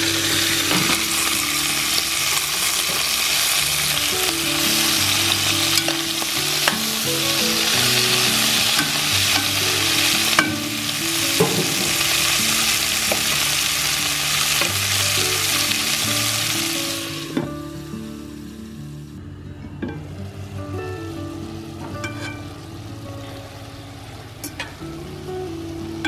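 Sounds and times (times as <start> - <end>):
meat and vegetables sizzling in a pot: 0.0 - 19.2, 20.0 - 26.0
metal tongs clacking against pot: 5.7 - 7.0, 8.4 - 9.6, 10.3 - 10.6, 24.4 - 24.8.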